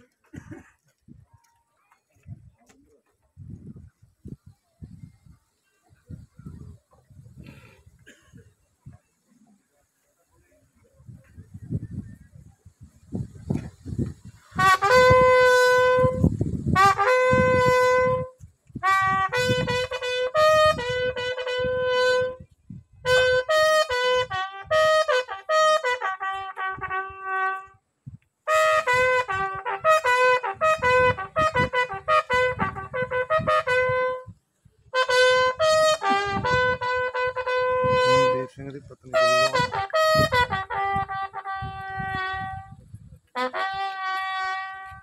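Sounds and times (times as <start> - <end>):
bugle call: 16.8 - 22.4, 23.1 - 27.7, 28.5 - 34.2, 35.0 - 38.5, 39.1 - 42.6, 43.4 - 45.0.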